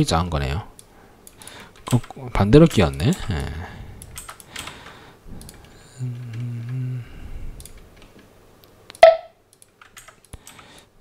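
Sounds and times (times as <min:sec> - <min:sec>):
computer mouse and keyboard clicks: 0:04.0 - 0:06.8, 0:07.6 - 0:10.9
man humming: 0:05.8 - 0:07.6.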